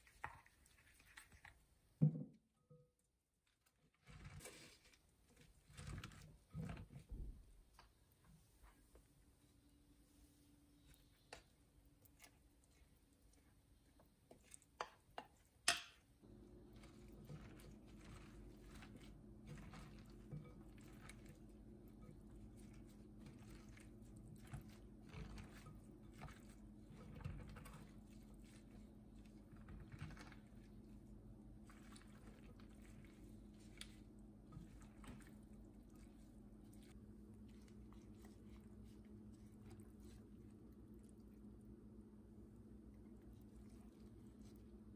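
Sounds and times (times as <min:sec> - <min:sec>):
cabbage squishing and rustling: 0:00.0 - 0:01.8, 0:03.5 - 0:07.2, 0:16.2 - 0:41.8, 0:42.6 - 0:44.9
low steady hum: 0:04.2 - 0:44.9.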